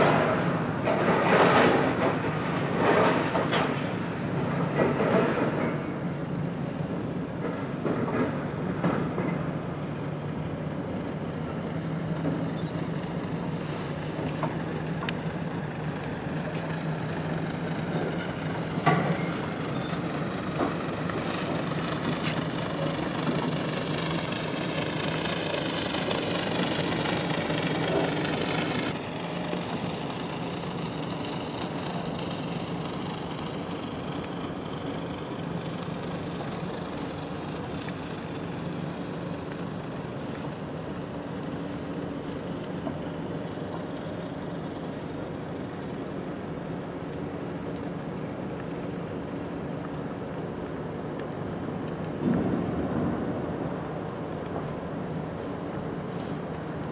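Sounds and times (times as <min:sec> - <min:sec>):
tyre and road noise: 0:00.0 - 0:56.9
car engine humming: 0:11.9 - 0:50.4.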